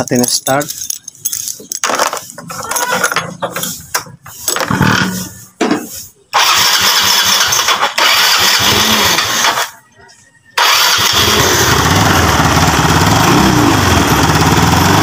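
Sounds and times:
scooter engine cranking and running: 4.6s - 5.2s, 6.3s - 9.7s, 10.6s - 15.0s.

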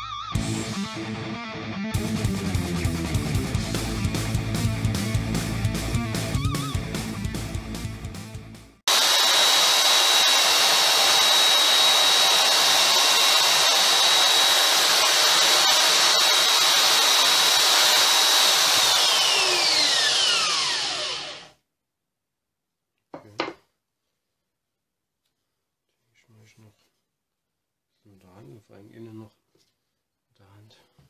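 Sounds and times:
belt sander whining: 8.9s - 21.5s.

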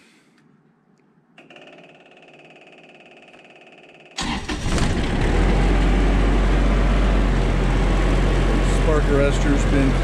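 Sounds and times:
generator starter whir: 4.1s - 10.0s
diesel engine running: 4.2s - 10.0s.

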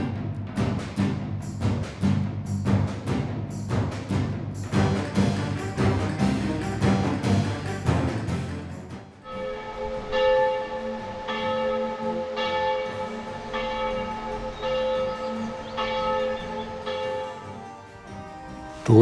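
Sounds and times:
music with a drum: 0.0s - 9.0s
church bell tolling: 9.2s - 17.5s.

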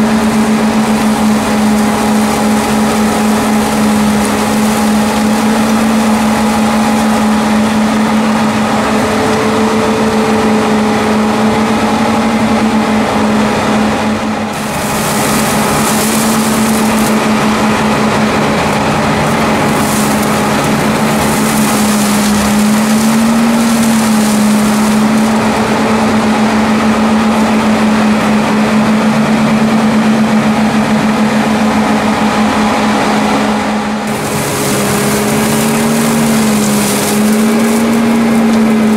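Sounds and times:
tractor flail mower humming: 0.0s - 38.9s.

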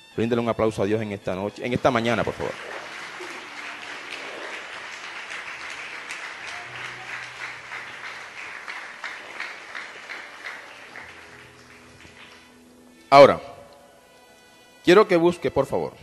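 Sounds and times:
crowd applauding: 1.6s - 12.8s.

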